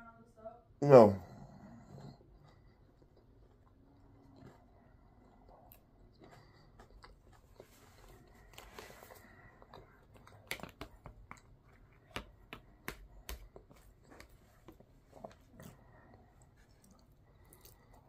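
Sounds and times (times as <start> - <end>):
quiet chewing: 1.2 - 18.0.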